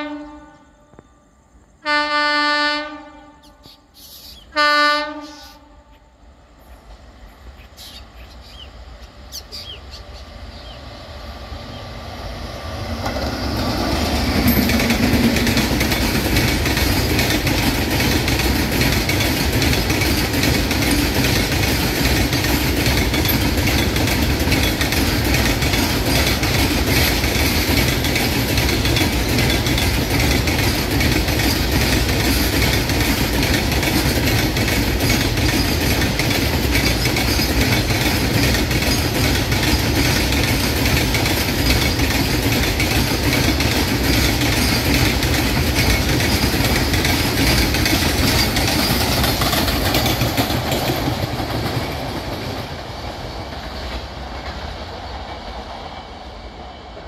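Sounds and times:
freight train wheels rumbling on rails: 0.0 - 57.0
wheels clacking over rail joints: 12.6 - 56.0.

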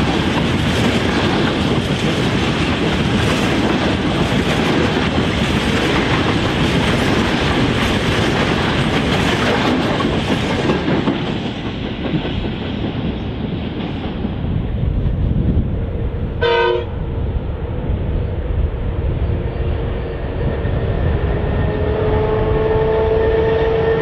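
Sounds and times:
train wagons rolling on rails: 0.0 - 16.6.

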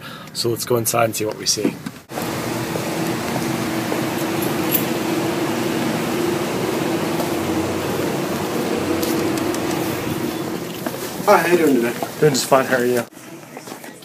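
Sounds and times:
low hum: 2.1 - 12.1
rushing air noise: 2.1 - 12.7.

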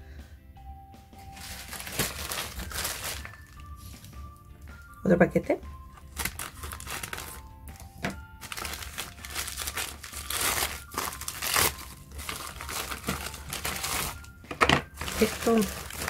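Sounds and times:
soft background music: 0.0 - 16.0
plastic bag crinkling: 1.2 - 4.0, 5.9 - 16.0.

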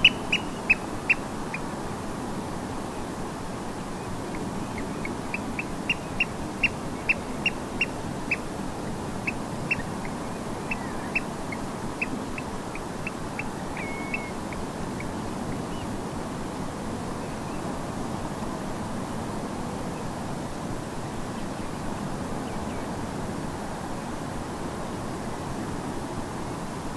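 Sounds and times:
oystercatchers piping calls: 0.0 - 1.2, 4.6 - 8.4, 9.2 - 15.1
distant gentle surf hiss: 0.0 - 26.9.

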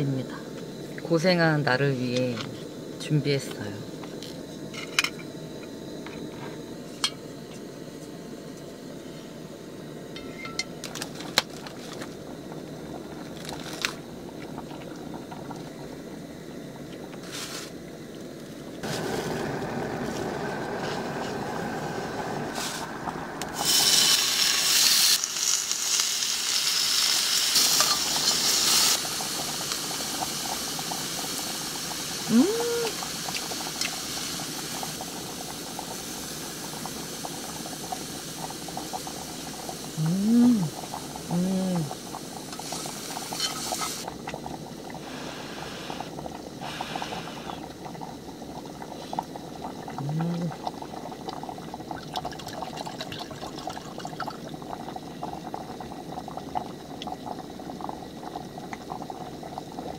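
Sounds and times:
stove setup clicks and clatter: 10.2 - 12.1
meat sizzling in skillet: 22.5 - 22.9, 23.5 - 40.0, 42.0 - 44.1.

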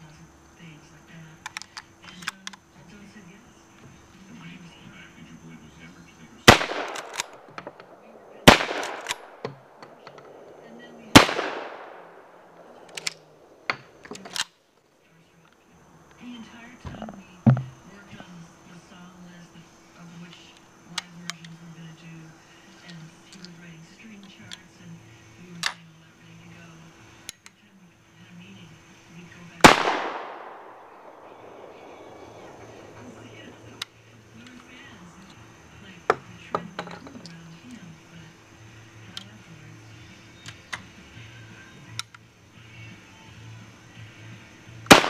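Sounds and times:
light clicks: 1.4 - 2.6, 41.9 - 42.2
shotgun blasts with echo: 6.4 - 14.4, 29.6 - 33.8.

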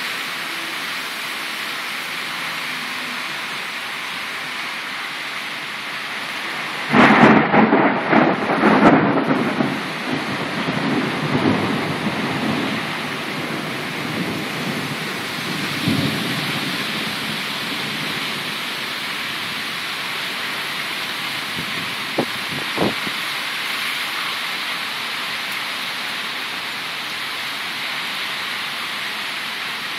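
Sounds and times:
heavy rain downpour: 0.0 - 29.9
thunder clap and rumble: 6.8 - 18.6.

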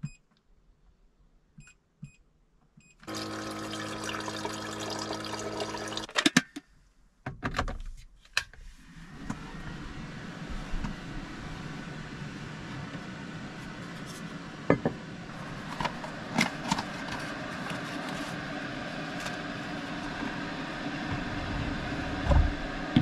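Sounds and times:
electric kettle hissing: 3.1 - 6.1, 9.2 - 23.0.

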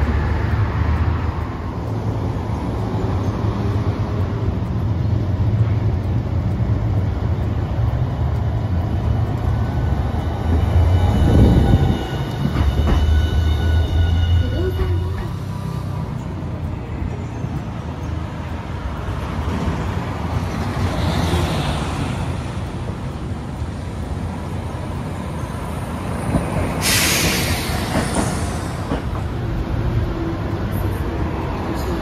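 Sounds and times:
traffic rumble: 0.0 - 32.0
air brakes hissing: 26.7 - 29.0.

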